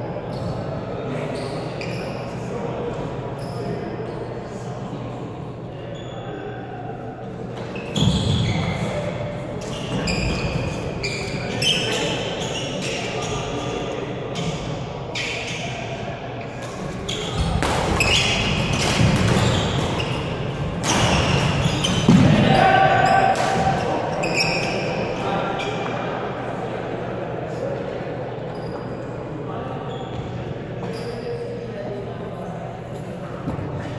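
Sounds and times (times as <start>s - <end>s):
echoing chatter: 0.0s - 33.9s
racket hitting shuttlecock: 17.6s - 20.0s.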